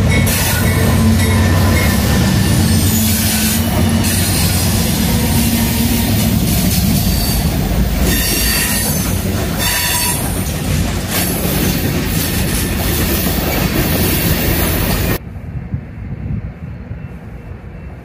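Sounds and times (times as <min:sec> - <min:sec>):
freight train wheels rumbling: 0:00.0 - 0:18.0.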